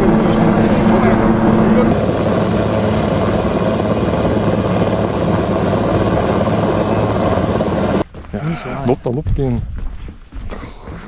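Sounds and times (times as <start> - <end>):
helicopter rotor drone: 1.2 - 8.0.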